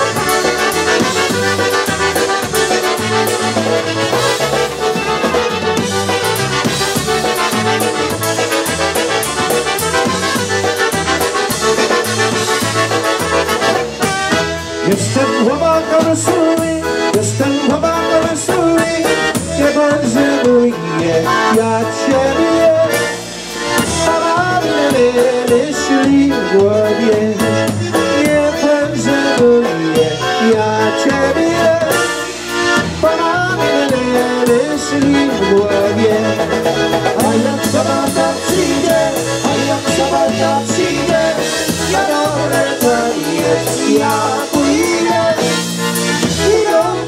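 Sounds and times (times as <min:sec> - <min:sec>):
accordion: 0:00.0 - 0:47.0
drum kit: 0:00.0 - 0:47.0
polka band playing: 0:00.0 - 0:47.0
man singing: 0:14.7 - 0:23.2, 0:23.8 - 0:47.0.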